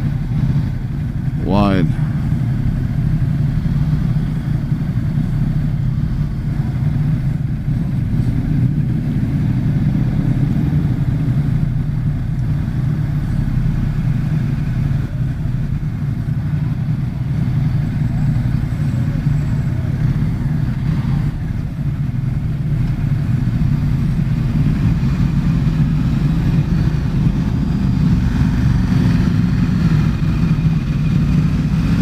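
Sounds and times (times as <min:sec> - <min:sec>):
motorcycle engine idling: 0:00.0 - 0:32.0
other motorcycles idling: 0:00.0 - 0:32.0.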